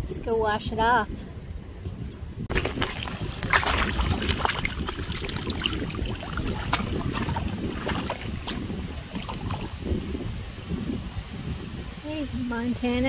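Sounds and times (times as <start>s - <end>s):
wind buffeting microphone: 0.0s - 13.0s
river water splashing: 2.5s - 10.0s.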